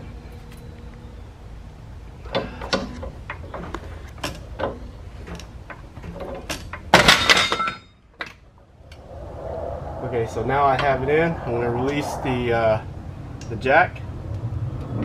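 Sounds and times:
rattling metal clatter: 0:02.2 - 0:08.4
metal clicks and knocks: 0:02.3 - 0:08.4.

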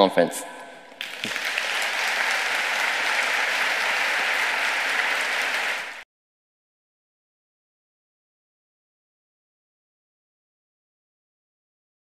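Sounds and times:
audience applauding: 0:00.9 - 0:06.0.

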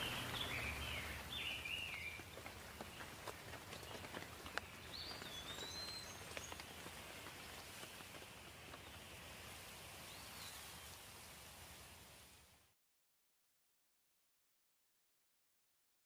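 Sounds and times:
bird call: 0:00.0 - 0:03.0, 0:04.6 - 0:06.8
water drips: 0:00.0 - 0:12.3
light rain pattering: 0:00.0 - 0:12.8.

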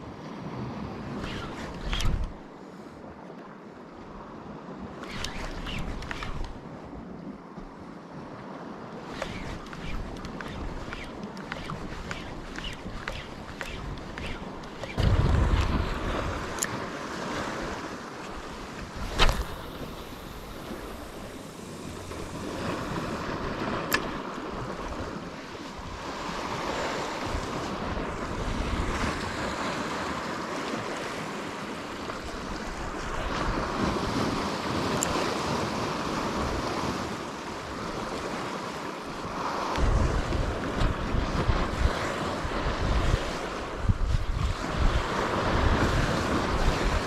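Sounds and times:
wind blowing over microphone: 0:00.0 - 0:02.6, 0:04.2 - 0:47.0
sea waves against rocky shore: 0:00.0 - 0:47.0
sharp click: 0:01.2 - 0:02.4, 0:05.0 - 0:06.6, 0:09.1 - 0:15.7, 0:16.5 - 0:16.8, 0:19.0 - 0:21.3, 0:23.8 - 0:24.1.

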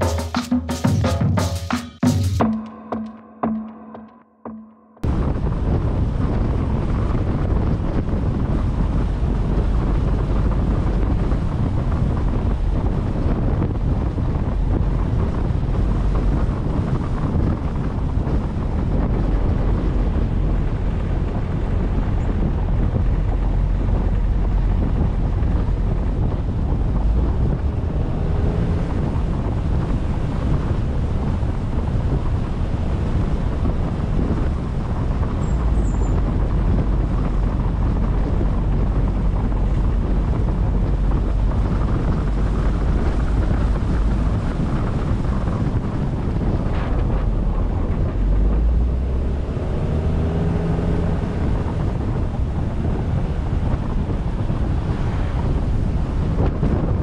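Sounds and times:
wind buffeting microphone: 0:05.0 - 0:57.0.

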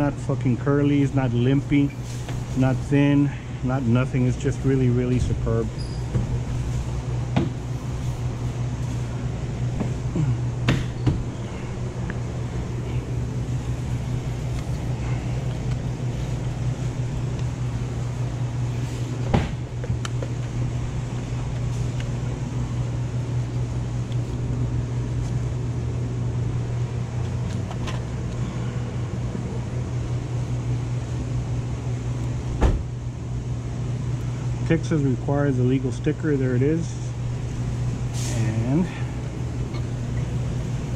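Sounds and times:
low mechanical hum: 0:00.0 - 0:40.9.

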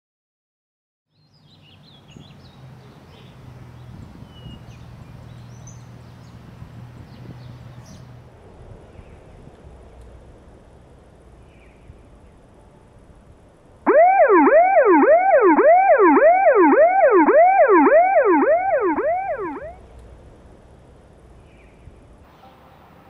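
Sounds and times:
siren cycling in pitch: 0:13.9 - 0:19.8.

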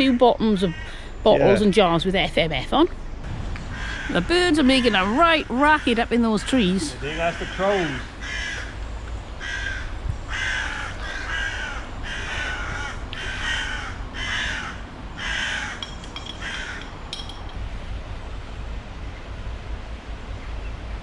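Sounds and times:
crows cawing: 0:00.6 - 0:01.1, 0:03.6 - 0:08.8, 0:09.4 - 0:17.3.

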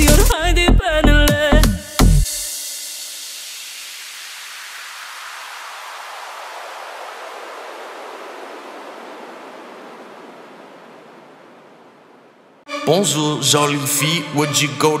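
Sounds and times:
white noise sweep: 0:02.3 - 0:12.6.

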